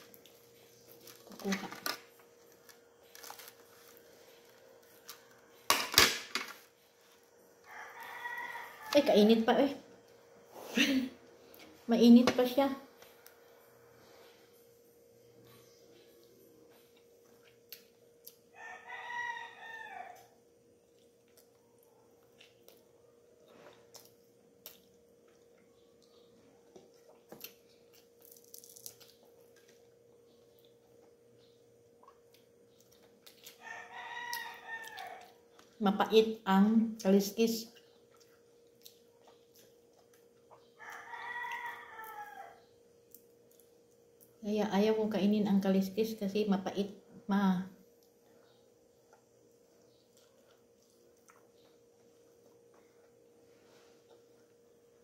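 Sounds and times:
chewing and eating sounds: 0.0s - 5.7s, 15.3s - 18.5s, 20.1s - 36.2s, 37.4s - 44.4s, 47.9s - 55.0s
faint steady hum: 0.0s - 55.0s.

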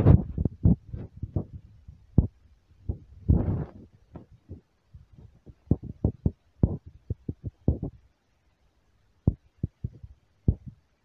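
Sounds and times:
short dull thumps: 5.2s - 8.0s.

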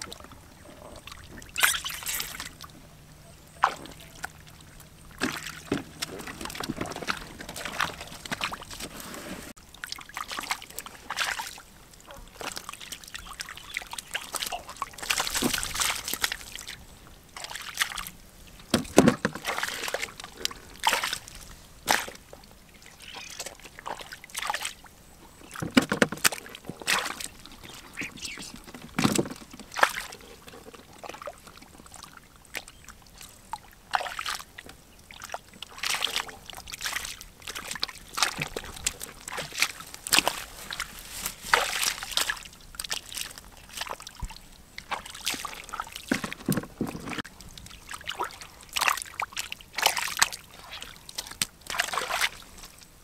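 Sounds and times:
hands splashing in muddy water: 3.5s - 11.6s, 12.4s - 16.8s, 25.7s - 30.3s, 35.2s - 52.8s.

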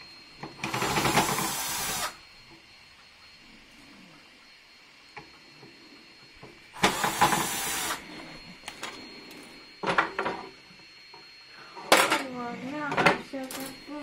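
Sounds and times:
drill driving a screw: 0.7s - 2.2s, 6.8s - 8.0s.

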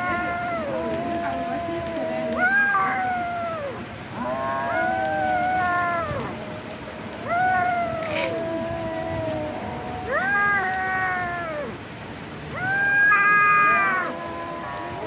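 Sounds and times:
kitten meowing: 0.0s - 3.8s, 4.7s - 6.3s, 7.2s - 8.4s, 10.1s - 11.8s, 12.6s - 14.2s.

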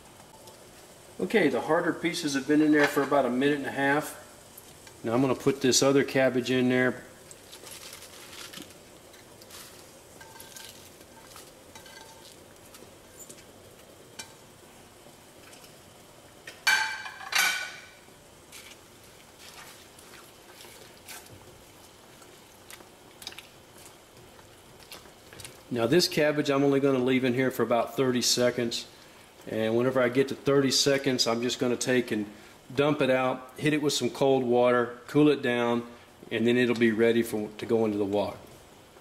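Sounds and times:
water bubbling in pot: 4.2s - 17.1s, 18.0s - 27.0s
metal utensil stirring: 7.6s - 13.4s.

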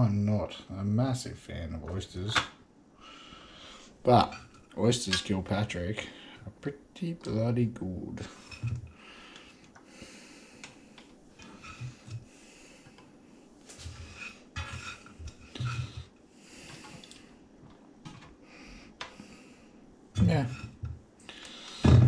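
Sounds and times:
person breathing: 3.0s - 4.0s, 8.9s - 14.3s, 15.5s - 17.5s, 18.4s - 19.9s, 21.2s - 22.0s.

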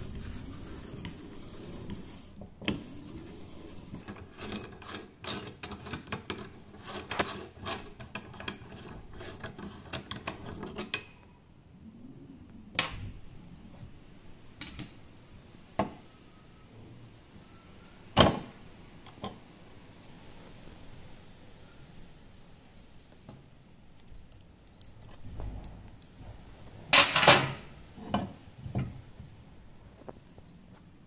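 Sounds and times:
metal clicks and scrapes: 3.9s - 11.2s.

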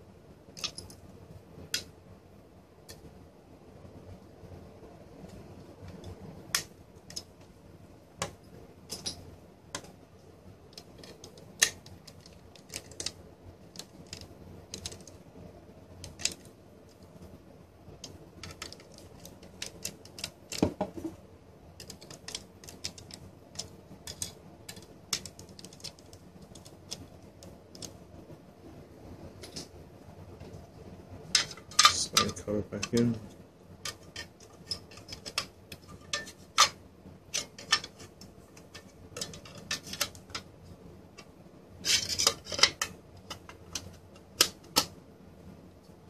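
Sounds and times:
metal chassis being handled: 18.0s - 21.2s, 21.8s - 28.0s, 31.3s - 40.5s, 41.1s - 45.0s.

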